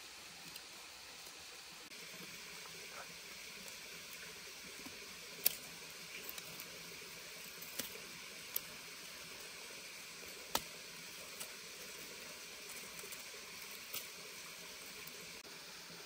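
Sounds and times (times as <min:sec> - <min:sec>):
stream water hissing: 0:00.0 - 0:16.0
knife cutting bamboo clicks: 0:10.5 - 0:10.7.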